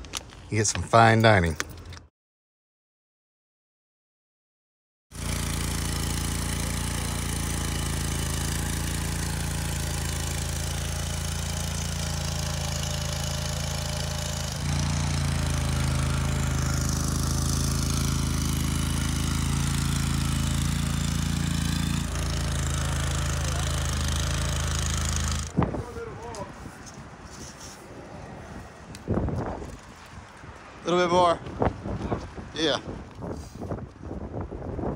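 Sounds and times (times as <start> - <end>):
trencher engine running: 5.1 - 25.6.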